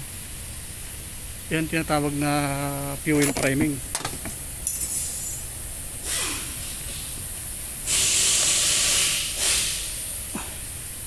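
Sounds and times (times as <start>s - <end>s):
fuel and air spurting from hose: 6.0s - 7.2s, 7.8s - 10.7s.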